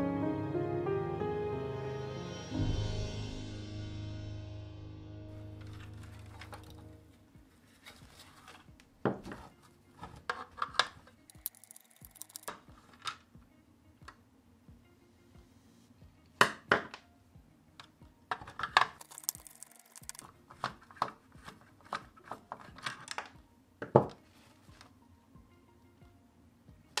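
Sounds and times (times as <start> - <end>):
screwdriver unscrewing screws: 10.5 - 12.6, 18.9 - 20.3
sharp clicks of screws: 11.3 - 12.6, 18.9 - 20.2.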